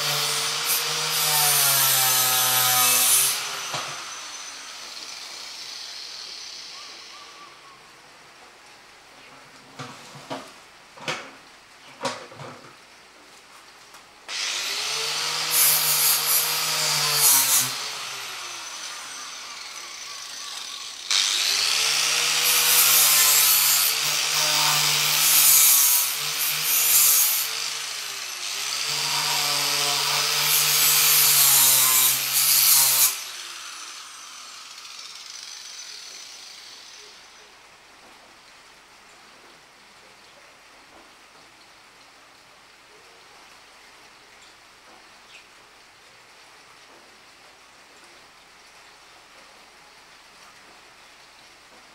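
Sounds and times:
power tool motor on metal: 0.0s - 7.1s, 14.3s - 37.0s
loud hissing: 0.0s - 7.5s.

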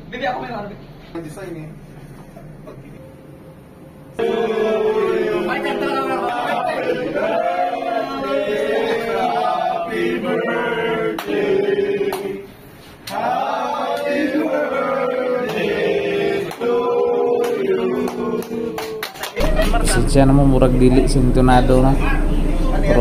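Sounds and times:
men singing in unison: 4.2s - 12.5s, 13.1s - 19.0s.

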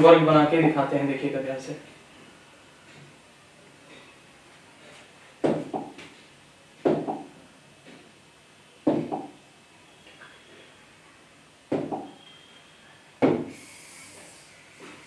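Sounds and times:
knocks against writing board: 5.4s - 6.0s, 6.8s - 7.3s, 8.9s - 9.3s, 11.7s - 12.1s, 13.2s - 13.5s.

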